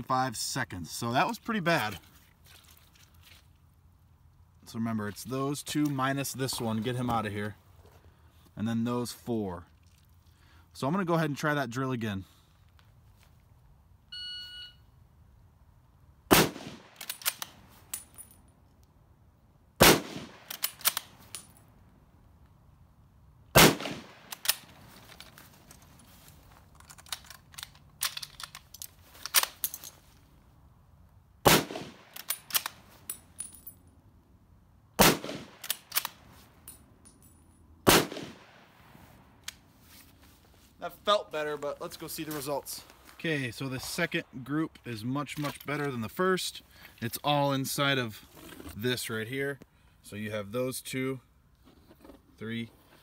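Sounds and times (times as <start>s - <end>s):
rifle shots: 16.3s - 17.4s, 19.8s - 21.1s, 23.5s - 24.7s, 31.4s - 32.7s, 35.0s - 36.2s, 37.8s - 38.8s
metal clicks of reloading: 16.9s - 18.1s, 20.4s - 21.5s, 24.3s - 25.4s, 26.8s - 29.9s, 32.1s - 33.5s, 35.5s - 36.2s
rifle bolt clacking: 16.9s - 18.1s, 20.3s - 21.5s, 32.0s - 33.6s, 35.3s - 36.2s.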